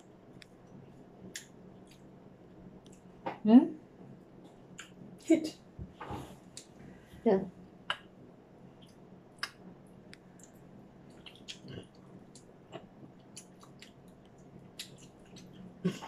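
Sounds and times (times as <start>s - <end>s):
people chewing: 10.2s - 16.0s.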